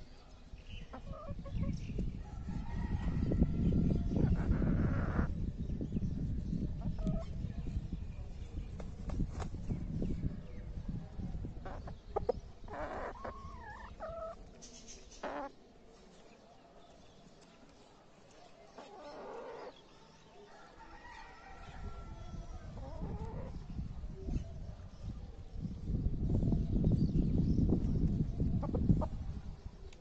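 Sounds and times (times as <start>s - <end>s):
chickens clucking: 0.9s - 1.8s, 3.0s - 5.4s, 6.8s - 7.4s, 11.3s - 15.5s, 18.8s - 19.8s, 22.6s - 23.8s, 28.0s - 29.4s.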